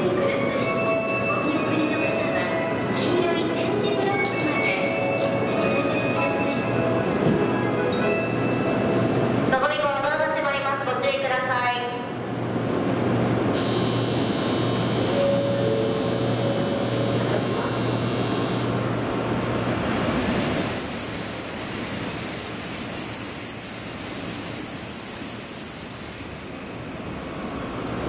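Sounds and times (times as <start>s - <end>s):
train whine: 12.1s - 28.0s
station noise: 13.1s - 28.0s
platform buzzer: 13.6s - 16.1s.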